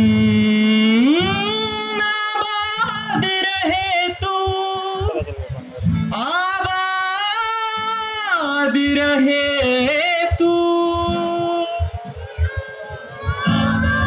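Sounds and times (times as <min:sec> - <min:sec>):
acoustic guitar: 0:00.0 - 0:14.0
mixed choir singing: 0:12.8 - 0:14.0.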